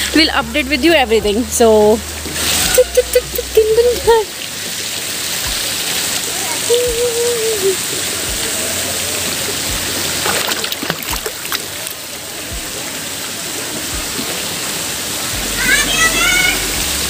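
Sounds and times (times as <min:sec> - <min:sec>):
water pouring into pool: 0:01.4 - 0:17.0
short clicks or splashes: 0:10.2 - 0:12.0.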